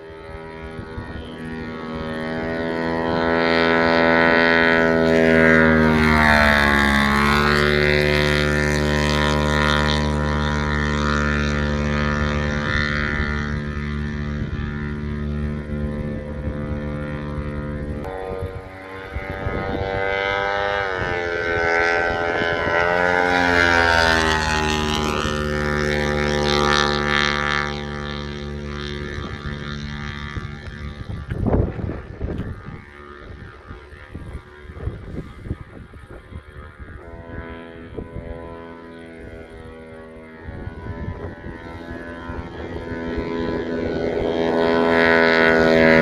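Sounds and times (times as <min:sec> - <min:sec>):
propeller plane passing: 0:00.0 - 0:46.0.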